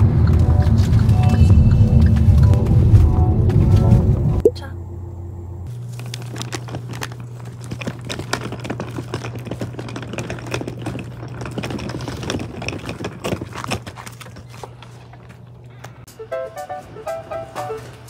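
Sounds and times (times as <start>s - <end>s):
steady low hum: 0.0s - 9.1s.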